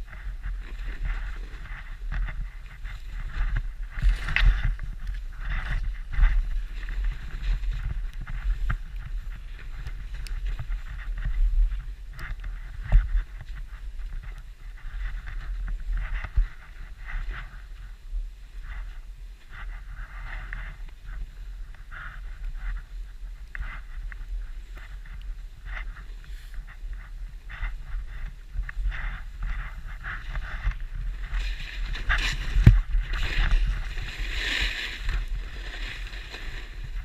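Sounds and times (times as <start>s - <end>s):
wind rumble on microphone: 0.0s - 37.0s
skis swishing through snow: 0.1s - 11.8s, 24.6s - 37.0s.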